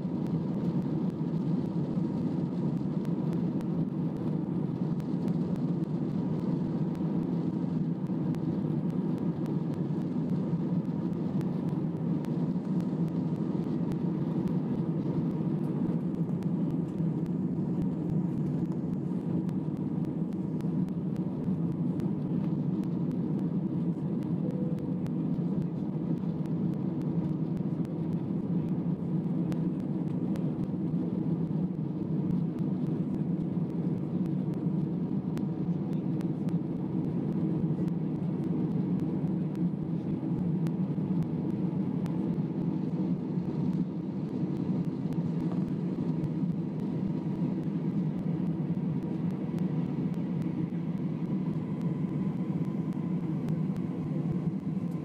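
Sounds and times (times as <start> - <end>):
aircraft cabin rumble: 0.0 - 55.0
faint high tone: 24.4 - 25.0.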